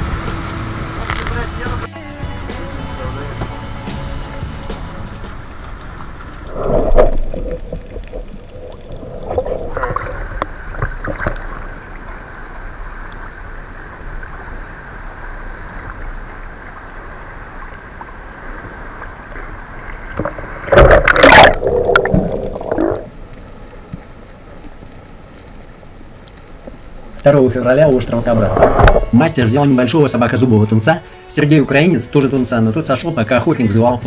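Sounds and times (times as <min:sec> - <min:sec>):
thin steady whine: 0:00.0 - 0:10.9
water sloshing and gurgling: 0:03.4 - 0:29.4
splashing and bubbles: 0:05.3 - 0:29.2.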